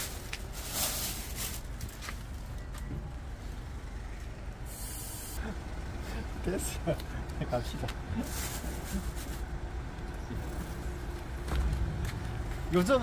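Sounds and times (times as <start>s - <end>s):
plastic bag rustling: 0.0s - 2.4s
nearby traffic rumble: 0.0s - 13.0s.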